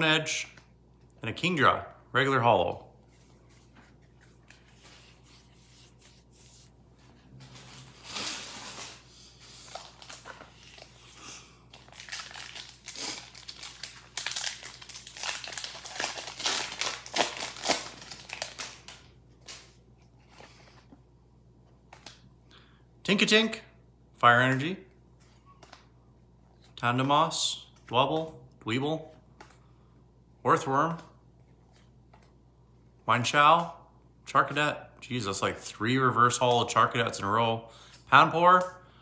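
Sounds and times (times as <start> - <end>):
foil wrapper crinkling and tearing: 7.8 - 11.1, 11.7 - 19.6.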